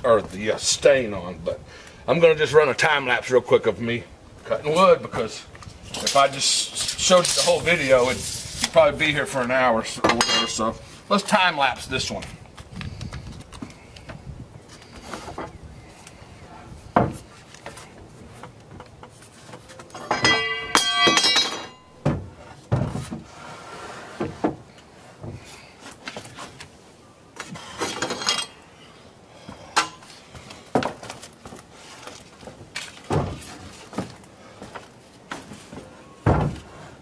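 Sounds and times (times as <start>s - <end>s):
wooden boards knocking and clattering: 16.9s - 23.3s, 32.4s - 36.8s.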